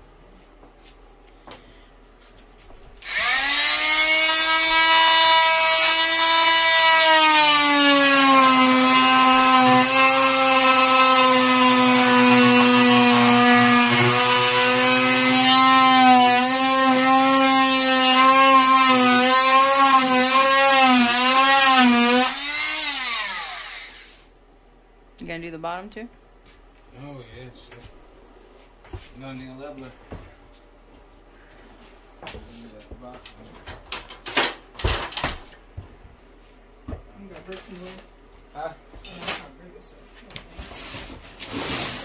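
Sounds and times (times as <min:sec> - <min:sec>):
oscillating multi-tool cutting wood: 0:03.0 - 0:24.2.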